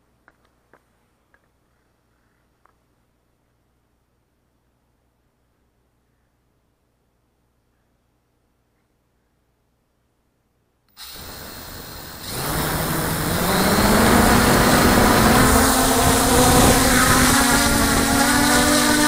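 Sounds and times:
quiet hiss: 0.0s - 19.0s
drone motors whining: 11.0s - 19.0s.

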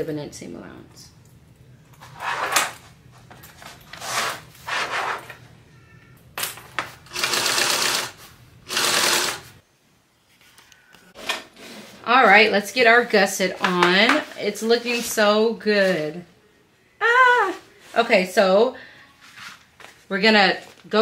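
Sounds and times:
sewing machine stitching: 7.1s - 9.6s.

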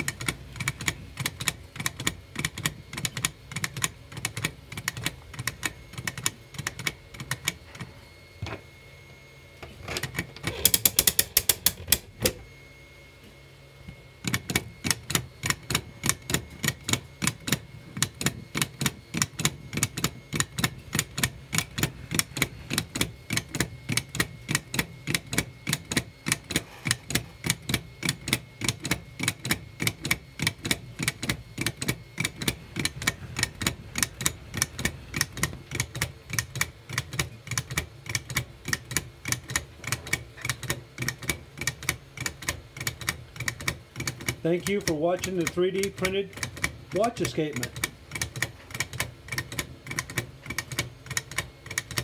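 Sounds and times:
clock escapement ticking: 14.5s - 52.0s.

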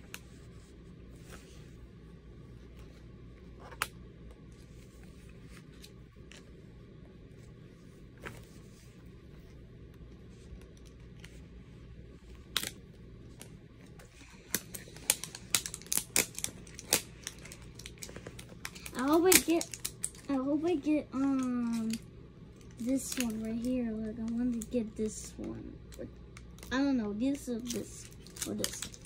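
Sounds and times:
packaging wrapper crackling: 14.4s - 20.4s, 22.6s - 23.7s, 27.6s - 29.0s
wrapper clicks: 14.5s - 20.3s, 27.6s - 29.0s.

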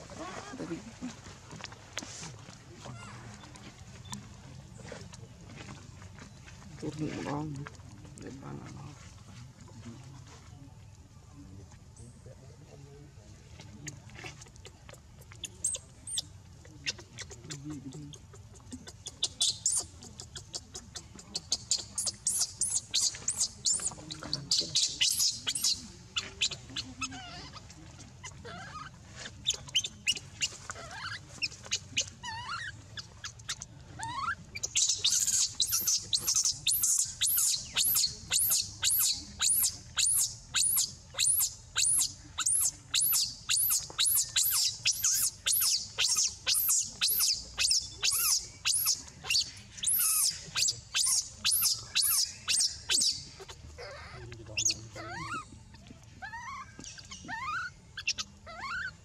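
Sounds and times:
baby monkey crying: 34.0s - 55.5s, 56.2s - 59.0s.

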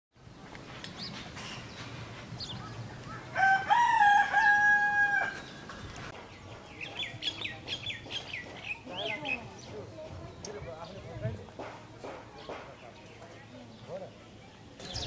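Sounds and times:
rooster crowing: 3.2s - 5.6s.

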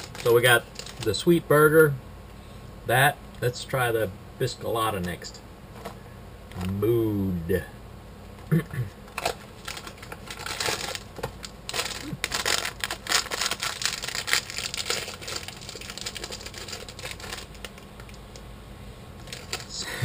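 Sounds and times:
snack wrapper crinkling and tearing: 0.0s - 1.1s, 9.1s - 18.4s, 19.2s - 19.8s.

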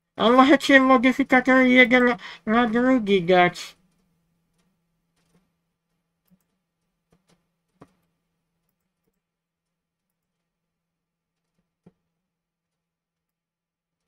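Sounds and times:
computer mouse clicks: 6.2s - 9.2s.

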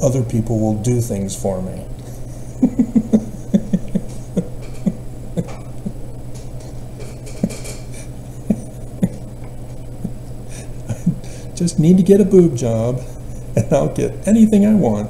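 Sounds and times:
steady low hum: 0.0s - 15.0s
man chuckling quietly: 2.0s - 6.2s, 7.2s - 11.5s.

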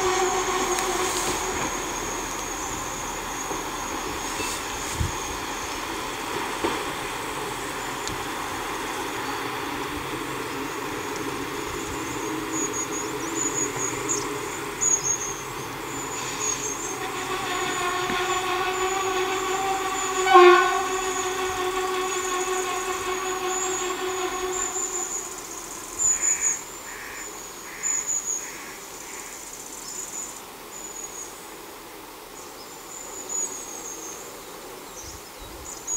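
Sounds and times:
train engine drone in tunnel: 0.0s - 35.0s
insects chirping: 0.0s - 35.9s.

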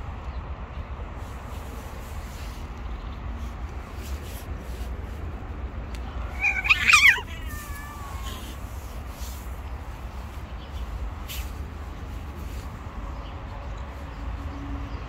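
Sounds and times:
cat meowing: 6.2s - 8.7s.

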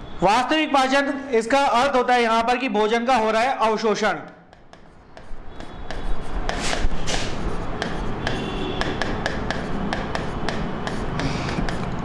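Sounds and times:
stylus scratching strokes: 4.5s - 12.0s
stylus tapping on touchscreen: 7.8s - 11.9s.

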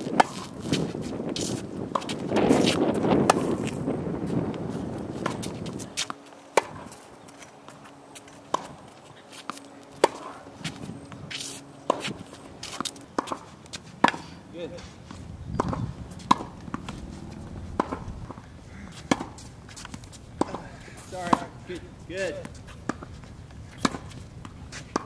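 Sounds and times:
tennis ball struck by racquets: 0.0s - 3.8s, 5.2s - 7.0s, 8.5s - 8.8s, 9.4s - 10.4s, 11.3s - 14.4s, 15.1s - 21.6s, 23.8s - 25.0s
footsteps on hard court: 0.1s - 14.2s, 14.8s - 21.5s
ball bounces: 15.5s - 18.4s.

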